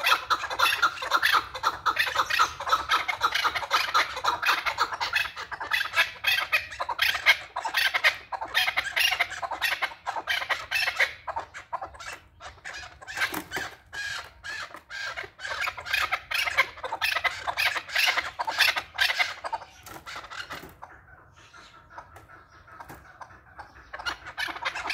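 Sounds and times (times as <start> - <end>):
partridges calling: 0.0 - 24.9.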